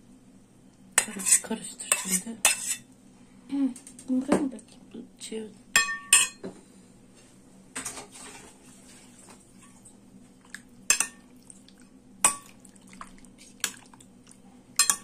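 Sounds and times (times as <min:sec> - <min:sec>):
metal spoon clinking on glass bowl: 0:05.8 - 0:06.4, 0:14.8 - 0:15.0
soft wet scrapes: 0:08.1 - 0:10.7.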